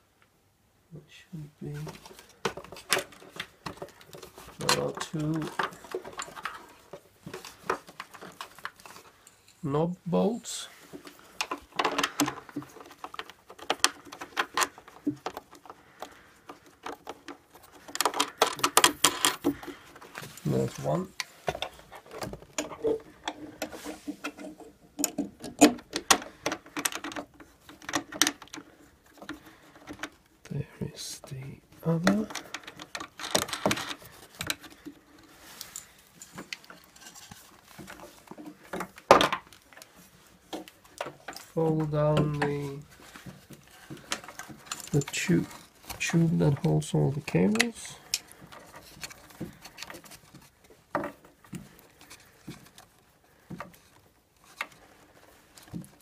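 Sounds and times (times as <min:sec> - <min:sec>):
rustling: 0:01.2 - 0:56.0
clicks and knocks of stand parts: 0:01.7 - 0:09.4, 0:10.8 - 0:30.4, 0:31.8 - 0:56.0
clicks and knocks: 0:10.9 - 0:30.3.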